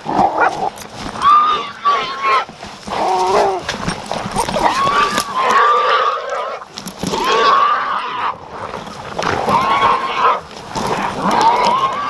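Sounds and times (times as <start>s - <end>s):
dogs running through brush: 0.0s - 12.0s
wavering animal cries: 1.2s - 3.6s, 4.4s - 6.6s, 9.4s - 10.4s, 11.0s - 12.0s.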